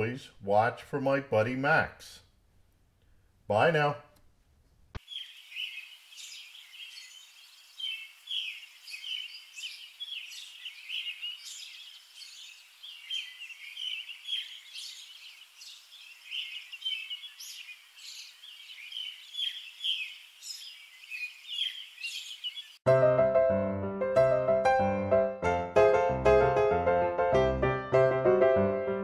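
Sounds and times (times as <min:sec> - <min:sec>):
small birds chirping: 0:05.0 - 0:22.8.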